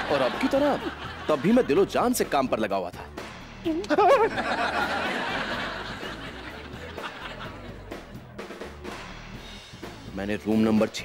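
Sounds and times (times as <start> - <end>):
audience laughter: 0.0 - 2.0, 3.9 - 8.1.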